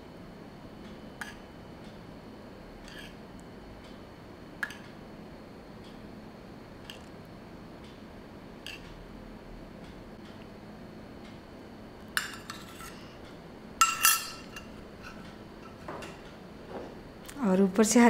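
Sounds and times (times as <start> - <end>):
metal spoon clinking on saucepan: 13.8 - 14.7.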